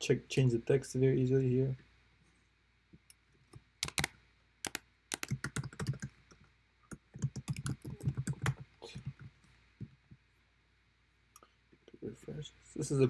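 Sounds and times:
computer keyboard typing: 3.8s - 6.1s, 6.9s - 9.2s.

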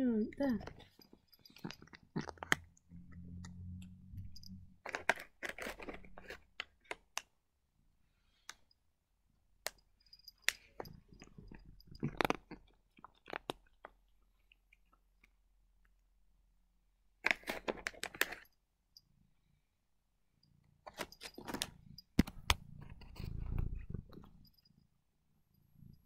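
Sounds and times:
cat crunching dry treats: 0.6s - 3.6s, 4.8s - 7.3s, 9.7s - 15.4s, 17.2s - 18.4s.

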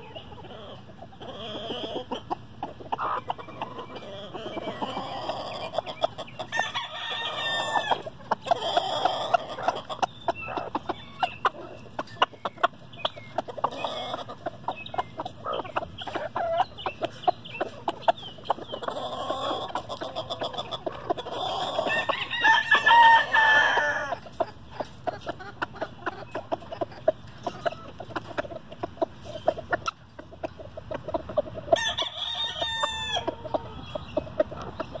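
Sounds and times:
chickens clucking: 0.0s - 35.0s
rooster crowing: 6.5s - 8.1s, 21.8s - 24.2s, 31.8s - 33.5s.

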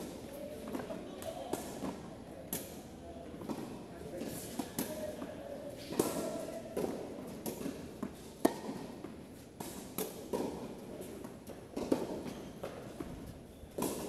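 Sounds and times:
rackets striking tennis ball: 5.9s - 14.0s.

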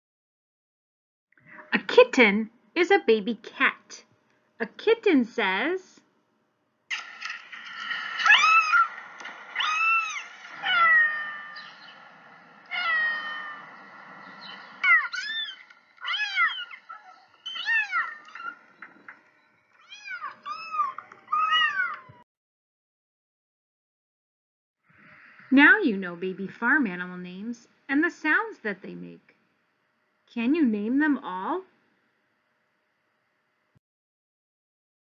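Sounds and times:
kitten meowing: 8.3s - 8.9s, 9.6s - 11.7s, 12.7s - 13.6s, 14.8s - 18.3s, 19.8s - 22.2s.

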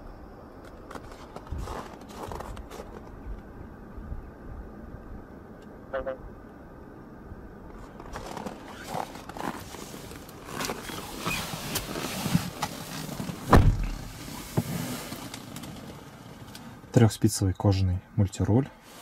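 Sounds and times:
clicks and rustles in car cabin: 7.7s - 16.8s
heavy dull thump: 13.4s - 14.7s.

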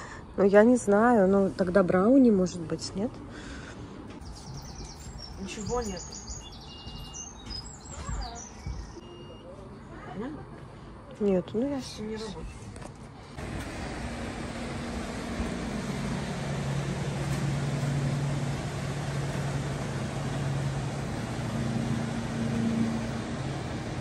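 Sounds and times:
motorboat engine humming: 13.4s - 24.0s
water wash: 13.4s - 24.0s.

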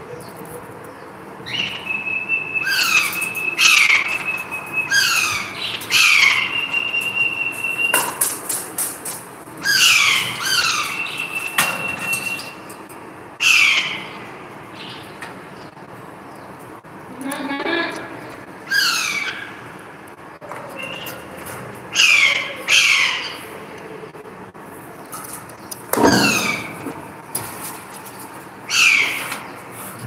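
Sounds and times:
parakeets squawking: 2.6s - 7.9s, 9.6s - 11.6s, 13.4s - 14.2s, 18.6s - 19.7s, 21.9s - 23.5s, 28.7s - 29.2s.

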